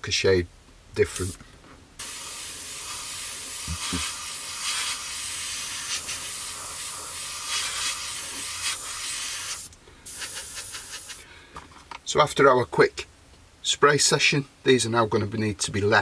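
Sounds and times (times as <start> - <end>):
airbrush spraying hiss: 1.1 - 1.4, 2.0 - 11.2.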